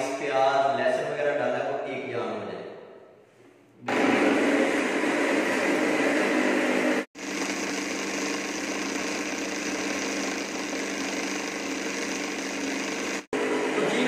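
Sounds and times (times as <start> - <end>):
blender running: 3.8 - 14.0.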